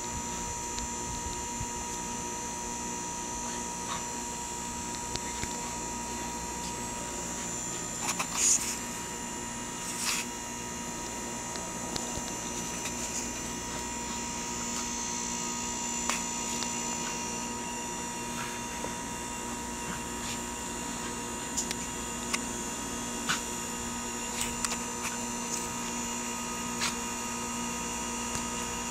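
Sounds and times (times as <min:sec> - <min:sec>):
electrical hum and hiss: 0:00.0 - 0:28.9.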